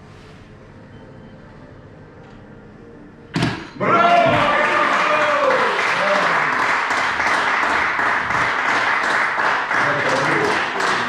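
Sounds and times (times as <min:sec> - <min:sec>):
people calling out: 0:03.8 - 0:06.4
crowd clapping: 0:03.8 - 0:11.0.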